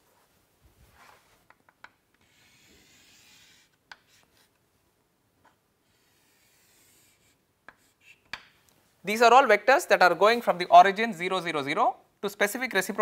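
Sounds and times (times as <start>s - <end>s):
chalk scratching on chalkboard: 2.2s - 4.5s, 5.8s - 8.2s
chalk tap: 6.5s - 8.6s.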